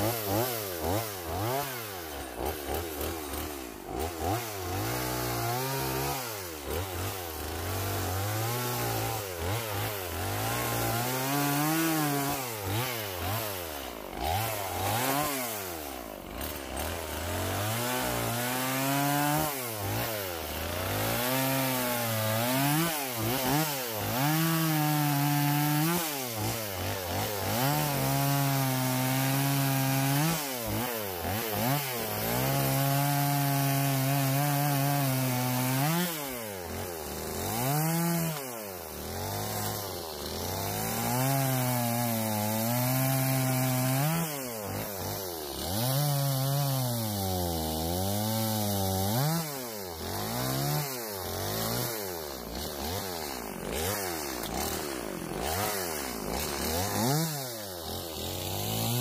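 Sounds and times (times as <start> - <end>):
chainsaw cutting through log: 0.0 - 59.0.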